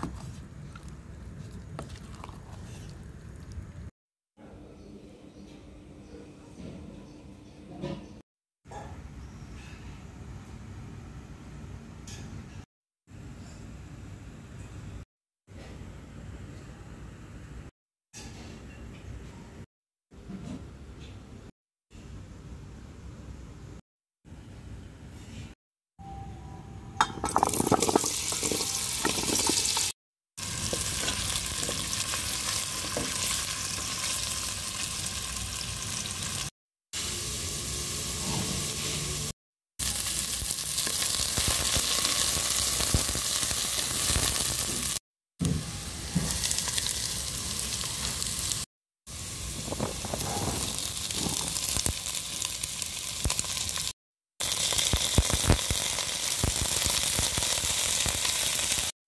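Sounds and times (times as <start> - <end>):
vegetables sizzling in hot oil: 27.3 - 58.9.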